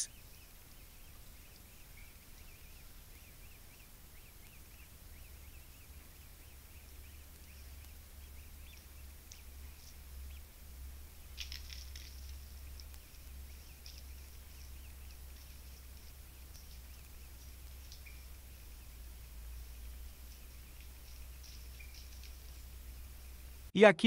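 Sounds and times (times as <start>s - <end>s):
steady low hum: 0.0s - 23.7s
cluster of clicks: 6.8s - 10.5s, 11.2s - 22.8s
high bird chirps: 11.3s - 23.5s.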